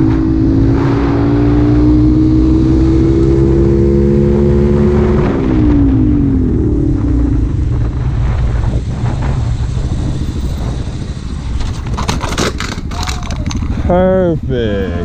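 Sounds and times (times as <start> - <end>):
motorcycle engine rumbling: 0.0 - 15.0
motorcycle clattering on pavement: 11.6 - 13.8.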